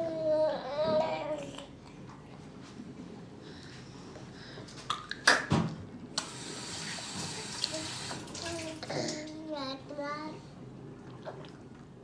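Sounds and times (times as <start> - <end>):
sink tap running: 6.2 - 8.8.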